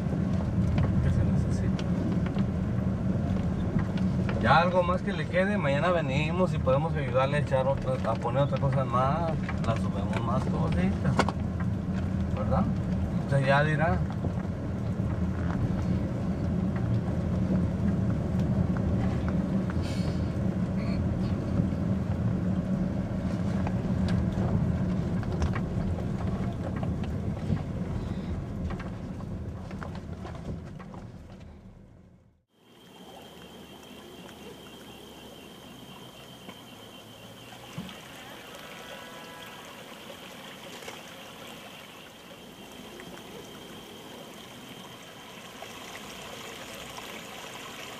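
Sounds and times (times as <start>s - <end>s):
car engine and road noise: 0.0s - 38.9s, 39.5s - 47.9s
water running over flooded ground: 3.0s - 17.0s, 32.6s - 47.9s.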